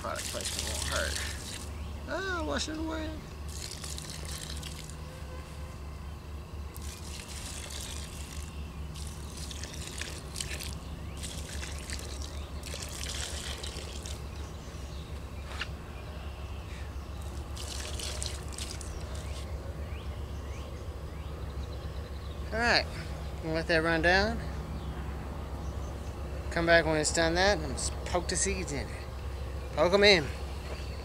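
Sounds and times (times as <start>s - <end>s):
water splashing and trickling: 0.0s - 1.8s, 3.4s - 5.1s, 6.7s - 14.5s, 17.2s - 19.5s
steady low hum: 0.0s - 31.0s.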